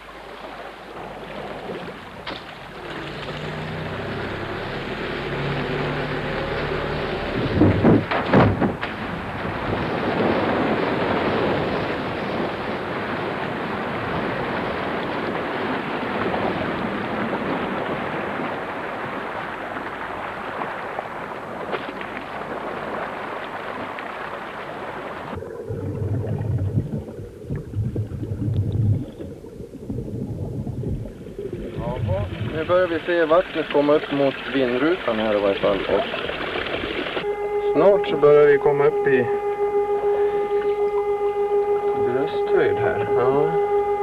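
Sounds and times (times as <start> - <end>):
water rushing and splashing: 0.0 - 44.0
water sloshing: 0.0 - 44.0
low thuds: 7.2 - 11.5.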